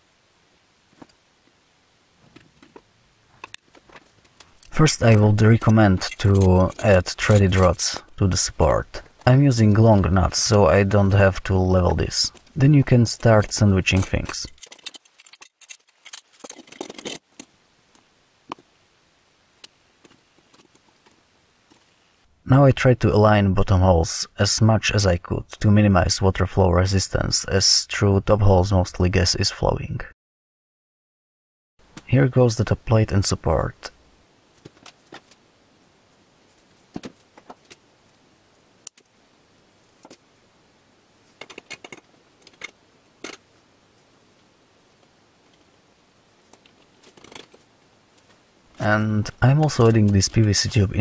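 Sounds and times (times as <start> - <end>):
clicks and knocks of metal parts: 2.3 - 8.2, 13.3 - 17.6, 41.4 - 43.4, 46.5 - 47.6.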